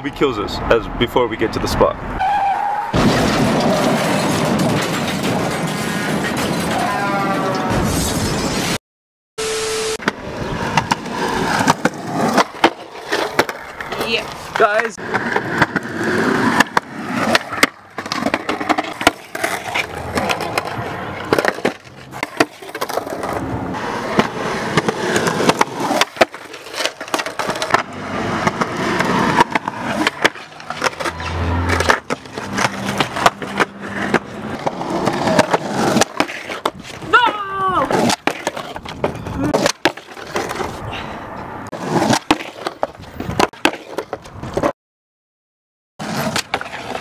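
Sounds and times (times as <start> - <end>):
skateboard wheels rolling on concrete: 1.4 - 8.4, 9.9 - 44.7, 46.0 - 47.0
skateboards clacking on pavement: 3.0 - 7.5, 10.0 - 40.8, 41.7 - 44.7, 46.0 - 47.0.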